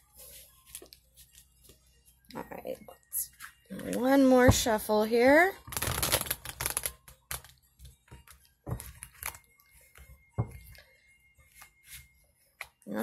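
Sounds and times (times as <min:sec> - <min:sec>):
cards being shuffled: 0:05.7 - 0:07.5.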